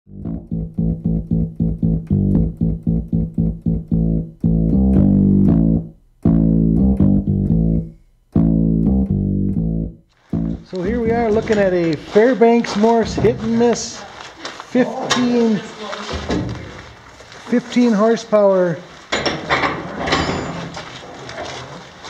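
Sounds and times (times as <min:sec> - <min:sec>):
plucked guitar and bass music: 0:00.1 - 0:11.9.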